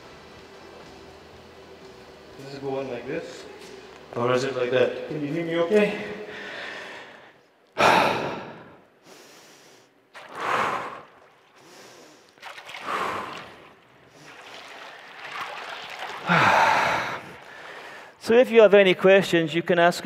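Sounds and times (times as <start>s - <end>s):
man breathing forcefully: 6.3s - 13.6s, 16.3s - 18.2s.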